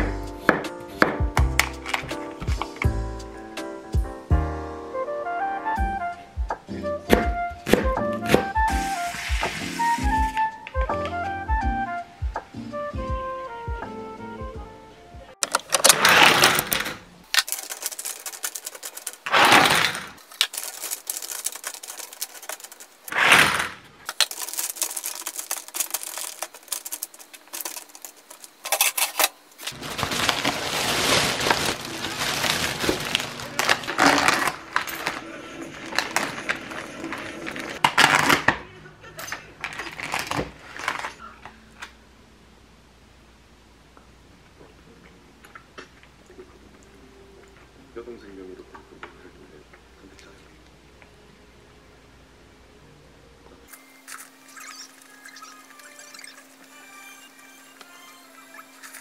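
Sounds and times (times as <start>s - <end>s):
household handling clatter: 15.4s - 38.5s
plastic bag rustling: 15.4s - 38.5s, 39.5s - 41.5s, 58.3s - 59.0s.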